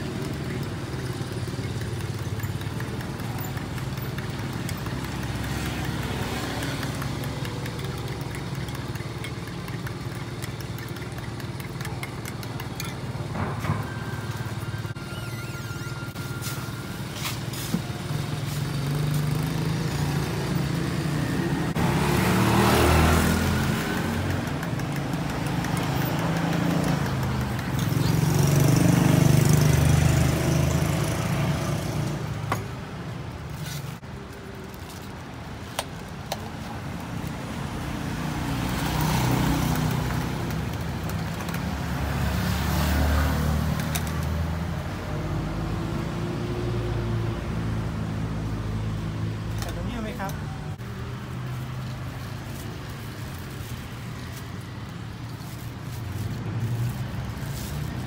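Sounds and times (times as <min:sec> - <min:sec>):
motorcycles and cars passing: 0:00.0 - 0:58.0.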